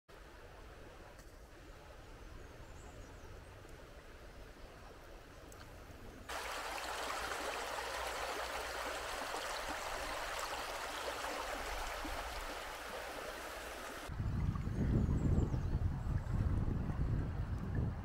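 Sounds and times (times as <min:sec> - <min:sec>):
river water rushing over stones: 0:06.3 - 0:14.1.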